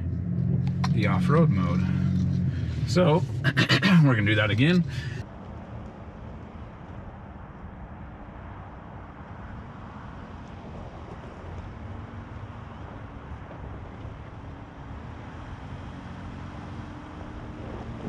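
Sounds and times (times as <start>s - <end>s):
car engine running at low revs: 0.0s - 8.4s.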